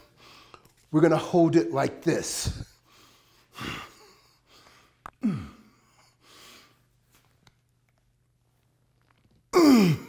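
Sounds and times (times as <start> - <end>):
man breathing: 0.0 - 0.9, 2.4 - 7.2.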